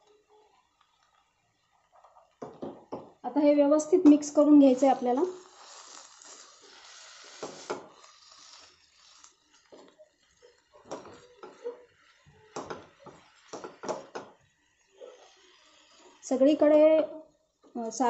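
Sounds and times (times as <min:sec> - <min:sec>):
spatula scraping a pan: 0:04.2 - 0:16.4.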